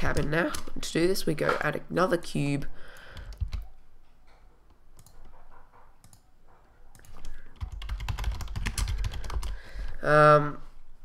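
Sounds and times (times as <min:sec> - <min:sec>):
keyboard and mouse clicks: 0:00.0 - 0:00.8, 0:03.2 - 0:06.2, 0:06.9 - 0:09.6.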